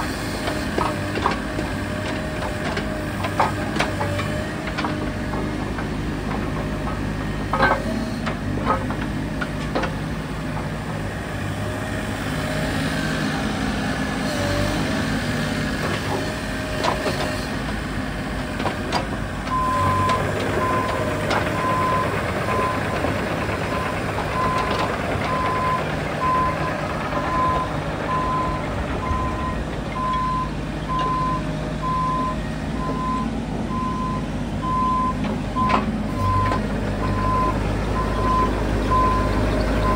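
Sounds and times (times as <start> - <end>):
excavator diesel engine under load: 0.0 - 39.9
travel alarm beeping: 19.5 - 22.9, 23.8 - 39.9.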